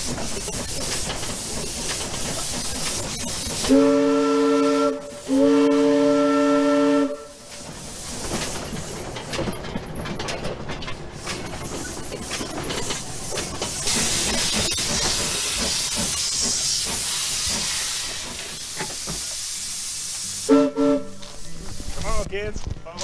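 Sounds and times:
steam hissing: 0.0 - 9.1, 11.0 - 22.3
steam whistle blasts: 3.7 - 7.4, 20.4 - 21.3.

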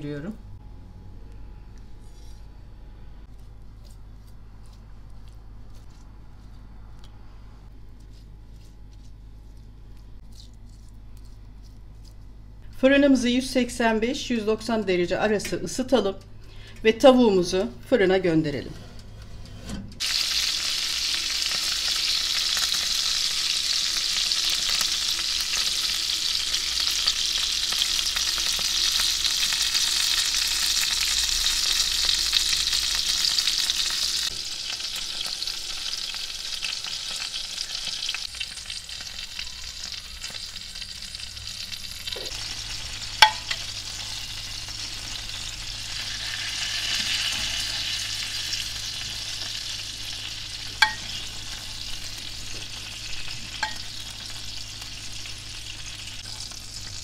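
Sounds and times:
oil sizzling in a baking dish: 20.0 - 57.0.

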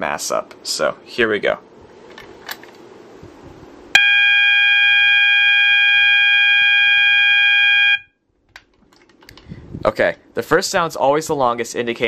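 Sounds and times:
fire alarm horn tone: 4.0 - 8.2.

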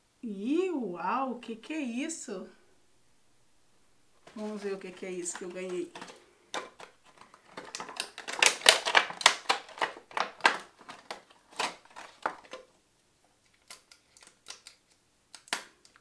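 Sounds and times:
plastic and foil packaging crinkling: 4.2 - 12.7, 13.4 - 16.0.

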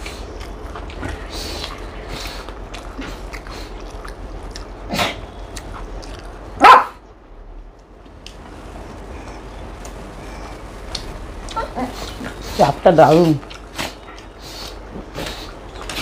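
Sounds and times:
chewing and lip-smacking: 0.0 - 6.6, 13.4 - 16.0
dog barking: 6.6 - 7.0.

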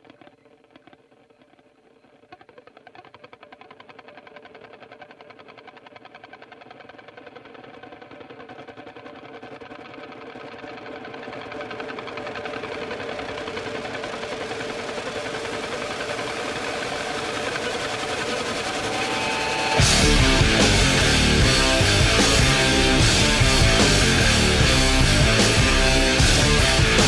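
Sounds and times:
buzzing drone: 11.5 - 27.0
loud rock music: 16.8 - 27.0.

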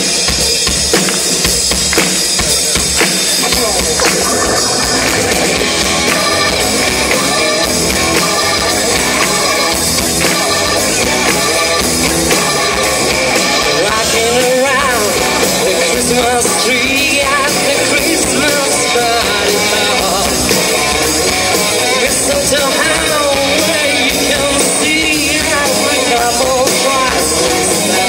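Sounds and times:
rock band playing live: 0.0 - 28.0.

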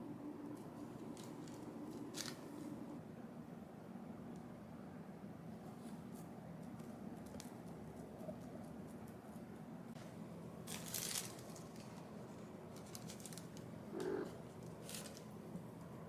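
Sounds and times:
plastic bag rustling: 0.9 - 2.9, 10.6 - 13.8, 14.5 - 15.4.

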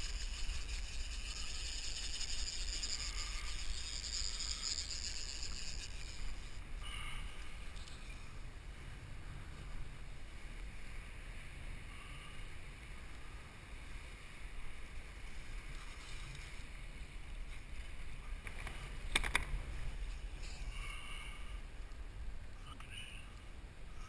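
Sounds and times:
sharp clicks: 18.4 - 19.6.

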